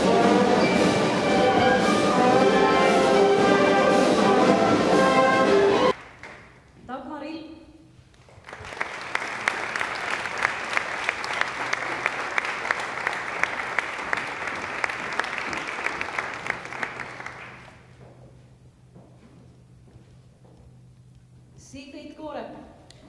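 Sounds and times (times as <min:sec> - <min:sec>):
sharp hand claps: 0:06.0 - 0:06.5, 0:08.3 - 0:17.8
audience applauding: 0:08.2 - 0:17.9.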